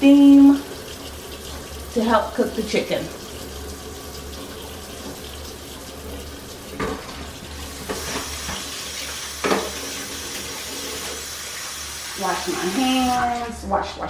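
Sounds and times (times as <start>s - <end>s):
tap running into sink: 4.3s - 5.5s, 6.7s - 11.2s.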